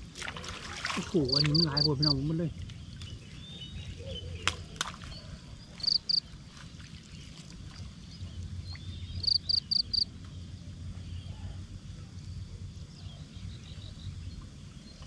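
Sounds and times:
small animal chirping: 0:05.8 - 0:06.2, 0:09.2 - 0:10.0.

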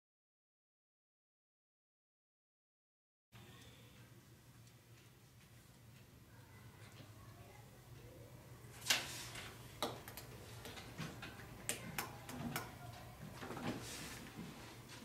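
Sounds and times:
pencils and pens clicking on desks: 0:08.7 - 0:14.7.

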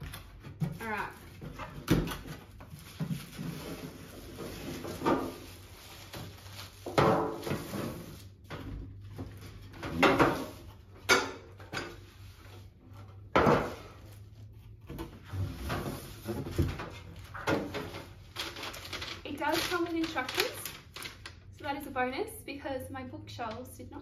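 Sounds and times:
plastic wrapping rustling: 0:00.0 - 0:10.8, 0:15.5 - 0:21.9.

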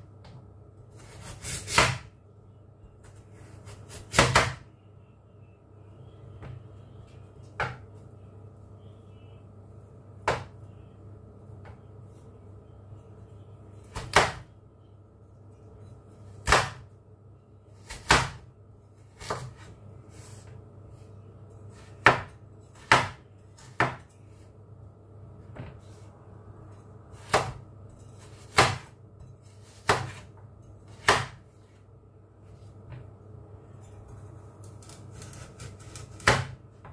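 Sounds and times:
low hum: 0:04.6 - 0:13.9.

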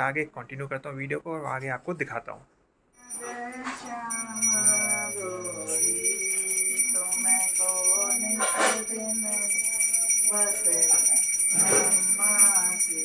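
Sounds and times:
hand bell ringing: 0:03.0 - 0:13.0
voices singing devotional song: 0:03.0 - 0:13.0.

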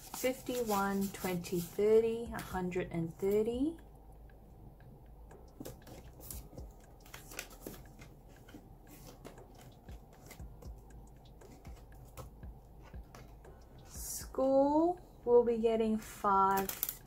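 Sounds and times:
metal binder rings clicking: 0:16.6 - 0:17.0.

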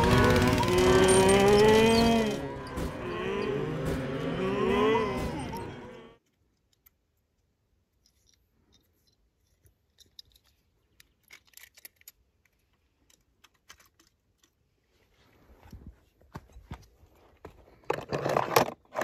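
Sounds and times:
faint clicks and scrapes: 0:06.2 - 0:17.0.

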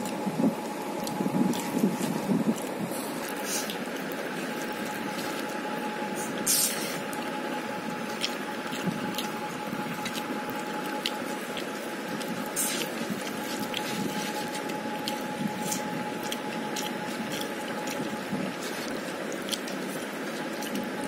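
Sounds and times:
chewing and smacking: 0:00.0 - 0:21.0
faint steady whine: 0:00.0 - 0:21.0
fingers squishing rice: 0:00.9 - 0:21.0.

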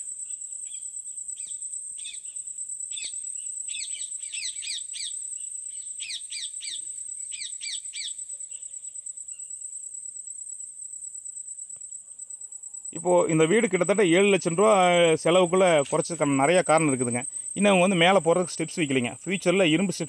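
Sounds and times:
bird chirping: 0:00.0 - 0:09.7
high insect trill: 0:00.0 - 0:20.0.

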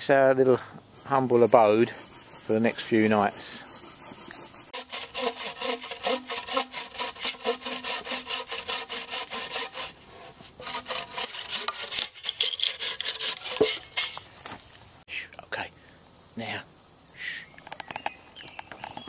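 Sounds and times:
bow saw cutting wood: 0:00.9 - 0:14.2.

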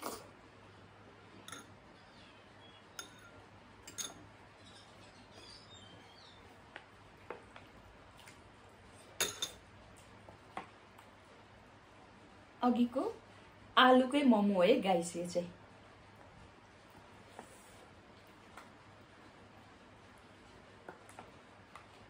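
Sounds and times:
faint steady hum: 0:00.0 - 0:22.0
metal spoon clinking against bowls: 0:01.4 - 0:01.8, 0:02.9 - 0:04.2, 0:09.2 - 0:09.6.

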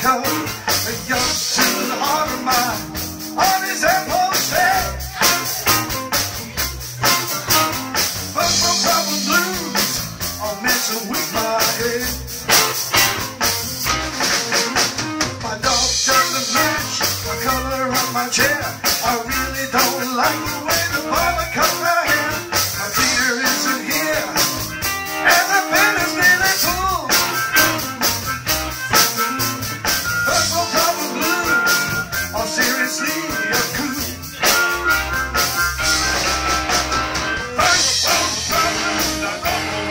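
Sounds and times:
drum kit beat: 0:00.0 - 0:39.9
electric bass: 0:00.0 - 0:39.9
electric guitar: 0:00.0 - 0:39.9
harmonica: 0:07.0 - 0:15.0, 0:19.3 - 0:39.9.

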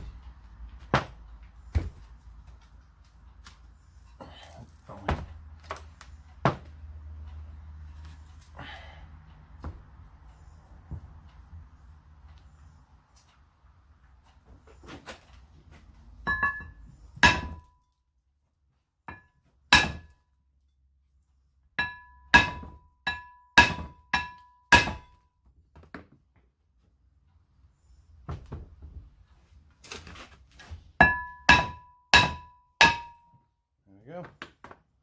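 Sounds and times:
hammer knocking on metal disc: 0:21.8 - 0:25.2, 0:31.0 - 0:33.4.

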